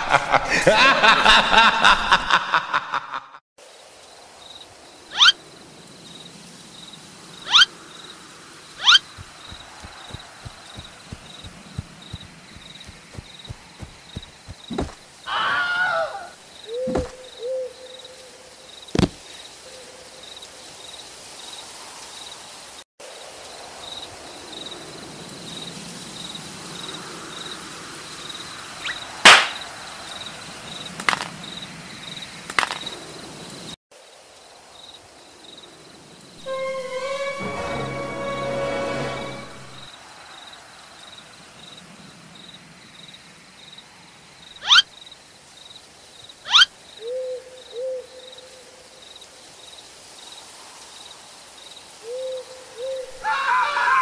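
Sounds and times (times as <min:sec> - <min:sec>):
insects chirping: 0:03.6 - 0:53.5
wavering call and hoot: 0:05.1 - 0:05.4, 0:07.5 - 0:07.7, 0:08.8 - 0:10.2, 0:15.3 - 0:18.3, 0:46.5 - 0:48.6, 0:52.0 - 0:54.0
soft thuds: 0:09.1 - 0:15.1, 0:16.8 - 0:17.3, 0:19.0 - 0:19.2.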